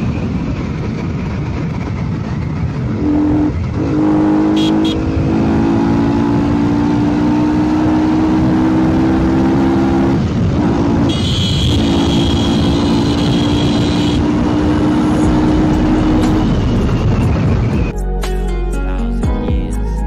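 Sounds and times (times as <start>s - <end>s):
motorcycle engine loud exhaust: 0.0s - 17.9s
high steady tone: 2.9s - 5.6s, 10.8s - 17.9s.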